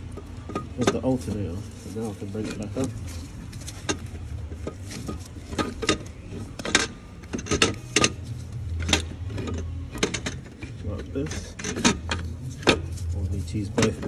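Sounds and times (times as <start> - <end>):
low steady hum: 0.0 - 14.0
metal clicks and knocks: 3.7 - 13.0.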